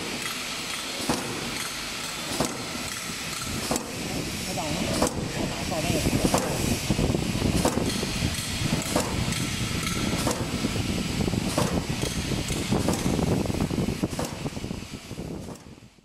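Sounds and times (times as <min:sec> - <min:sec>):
machine clicks and knocks: 0:00.0 - 0:04.0, 0:04.9 - 0:05.4, 0:06.2 - 0:06.7, 0:07.6 - 0:10.7, 0:11.4 - 0:13.4, 0:14.1 - 0:14.6, 0:15.4 - 0:15.8
steady machine noise: 0:00.0 - 0:16.0.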